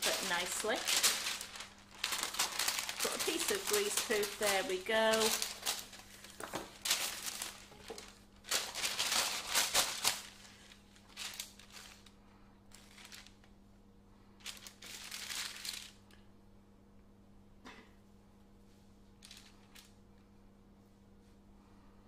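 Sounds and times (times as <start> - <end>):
greaseproof paper rustling: 0.0 - 12.1, 12.7 - 13.4, 14.4 - 16.0.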